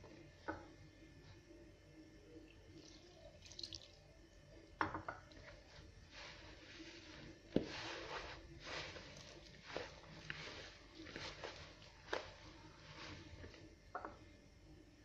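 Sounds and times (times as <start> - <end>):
hand kneading wet dough: 2.7 - 3.9, 5.3 - 13.7
water splashing into a bowl: 2.7 - 4.0
knocks against a bowl: 4.8 - 5.3.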